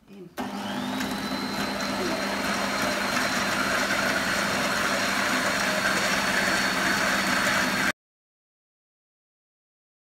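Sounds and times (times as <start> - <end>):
stand mixer running: 0.4 - 7.9.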